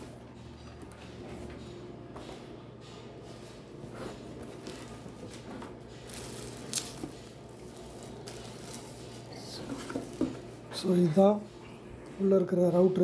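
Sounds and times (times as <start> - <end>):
plastic wrap crinkling: 4.5 - 11.5.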